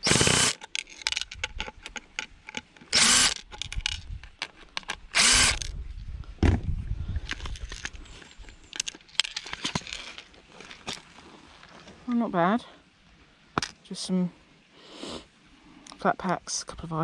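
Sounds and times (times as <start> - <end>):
power drill whirring: 0.0 - 0.6, 2.9 - 3.4, 5.1 - 5.7
clicks and knocks of metal parts: 0.5 - 5.7
thump: 6.4 - 6.7.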